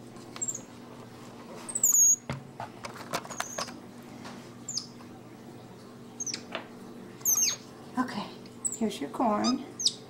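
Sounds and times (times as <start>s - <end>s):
monkeys squeaking: 1.7s - 2.2s, 7.2s - 7.6s.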